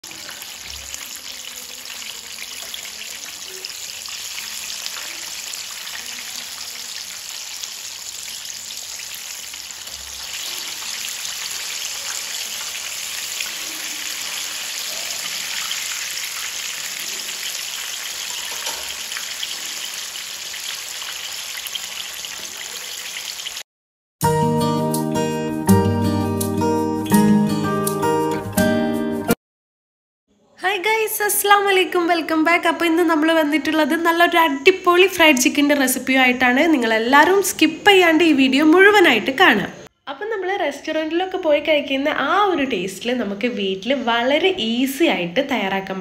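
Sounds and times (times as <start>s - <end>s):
chicken sizzling in hot oil: 0.0s - 23.7s.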